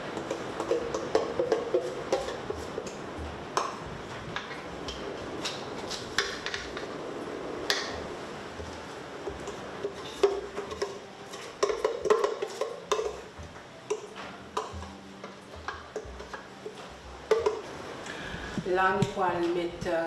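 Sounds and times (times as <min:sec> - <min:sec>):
utensil scraping metal bowl: 0:00.2 - 0:03.0, 0:09.4 - 0:13.3.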